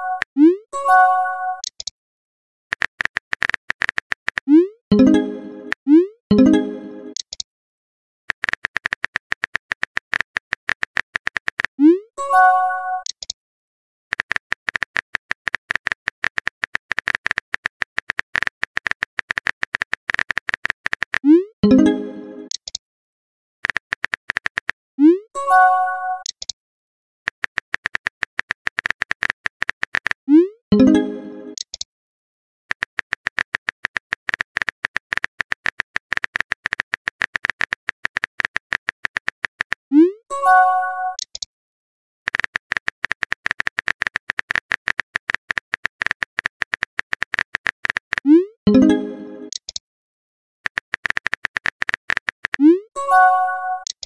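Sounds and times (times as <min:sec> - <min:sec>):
phone keyboard typing clicks: 0:02.7 - 0:05.8, 0:06.4 - 0:07.4, 0:08.3 - 0:11.8, 0:14.1 - 0:22.8, 0:23.6 - 0:24.7, 0:27.3 - 0:30.2, 0:30.8 - 0:31.9, 0:32.7 - 0:39.8, 0:41.1 - 0:41.5, 0:42.3 - 0:49.8, 0:50.6 - 0:52.8, 0:53.8 - 0:54.0.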